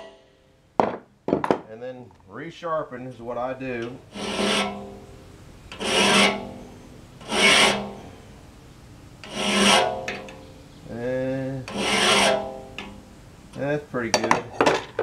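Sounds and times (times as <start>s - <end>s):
hand file rasping on saw blade: 4.1s - 5.0s, 5.7s - 8.1s, 9.2s - 10.2s, 11.7s - 12.7s.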